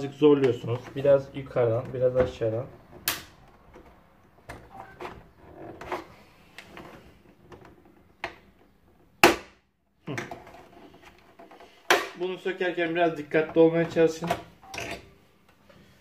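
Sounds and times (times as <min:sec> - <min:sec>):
loud crack of plastic: 0:03.0 - 0:03.4.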